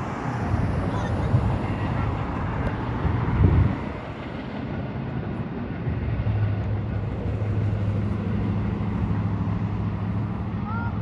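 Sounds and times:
road and wind noise: 0:00.0 - 0:11.0
vehicle engine humming: 0:00.0 - 0:11.0.

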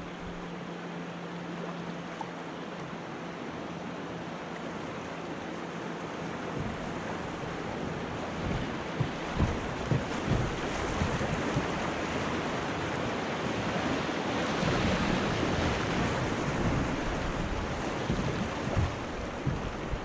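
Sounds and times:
river water rushing: 0:00.0 - 0:20.0
wind on microphone: 0:06.5 - 0:20.0.

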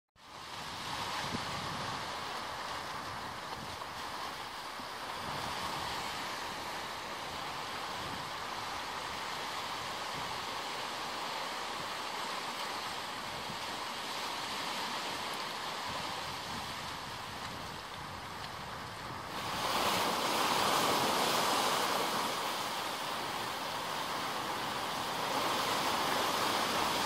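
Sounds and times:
surf washing around rocks: 0:00.2 - 0:27.0.

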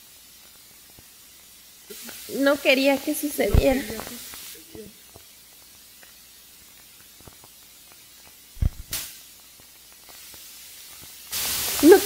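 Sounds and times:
faint background hiss: 0:00.0 - 0:12.0
thump and crackle: 0:03.5 - 0:04.5, 0:08.6 - 0:09.2.

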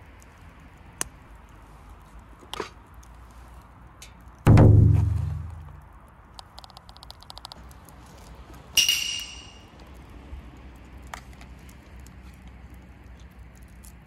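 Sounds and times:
wood fire crackling: 0:00.0 - 0:14.0
bright metallic ring: 0:08.8 - 0:09.7.

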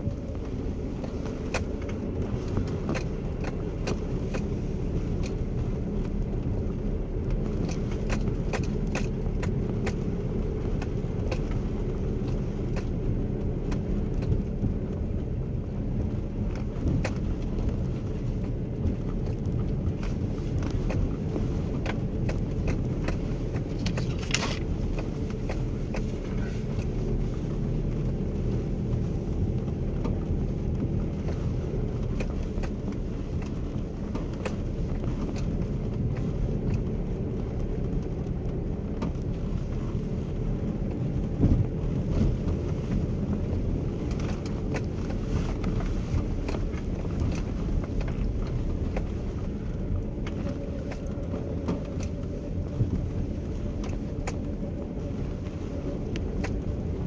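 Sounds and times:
car engine and tyre rumble: 0:00.0 - 0:57.0
small clicks and knocks: 0:00.1 - 0:57.0.

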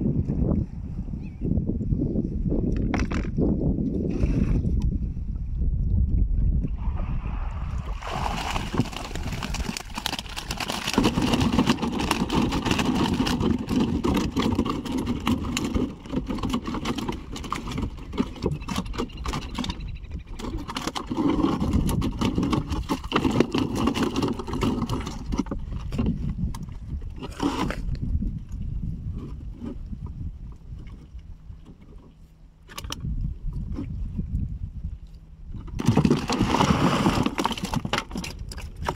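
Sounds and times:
water sloshing and splashing: 0:06.8 - 0:19.8, 0:20.4 - 0:34.2, 0:34.9 - 0:38.9.

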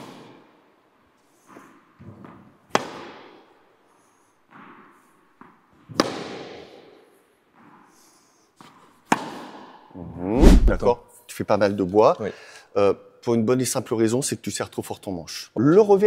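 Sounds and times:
racket hitting tennis ball: 0:05.9 - 0:06.8, 0:09.1 - 0:09.6.

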